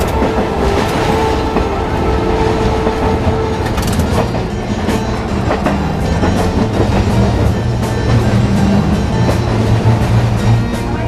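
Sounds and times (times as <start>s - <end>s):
streetcar rumbling: 0.0s - 11.0s
wheels clicking over track: 2.5s - 11.0s.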